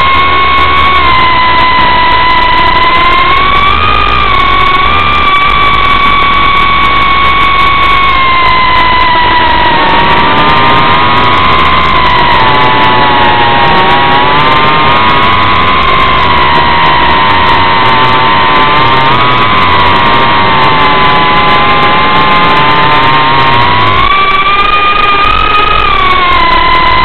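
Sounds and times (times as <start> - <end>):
drone propellers whining: 0.0 - 27.0.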